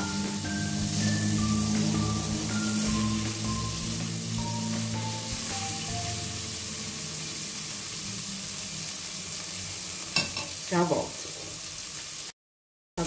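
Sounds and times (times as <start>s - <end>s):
background music: 0.0s - 9.6s
meat sizzling in a pot: 0.0s - 12.4s.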